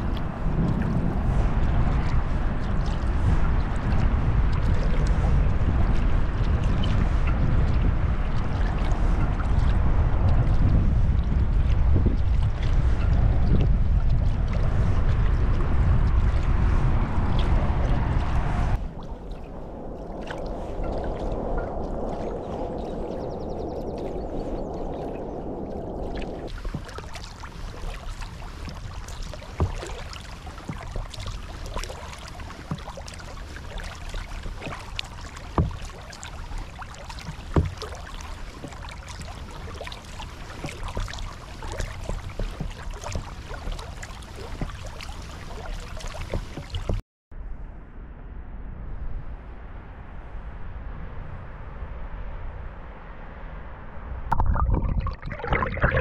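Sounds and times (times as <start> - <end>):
dull rushing noise: 0.0 - 33.8
paddle splashes: 0.0 - 47.0, 54.3 - 56.0
water lapping at hull: 0.0 - 47.0, 54.3 - 56.0
water dripping off paddle: 17.3 - 47.0, 54.3 - 56.0.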